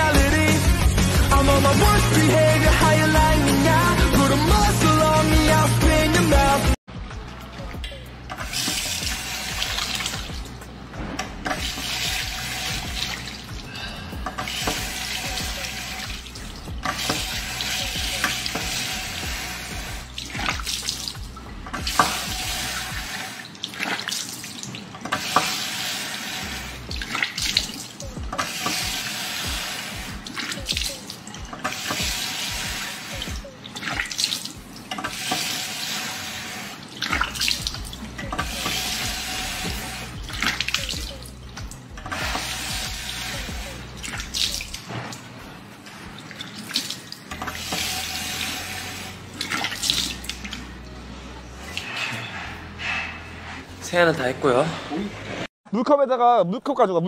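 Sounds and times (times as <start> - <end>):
tap water running into sink: 8.3 - 10.6, 11.2 - 13.6, 14.2 - 44.9, 46.2 - 50.7
water splashing: 11.4 - 45.3, 45.9 - 50.8.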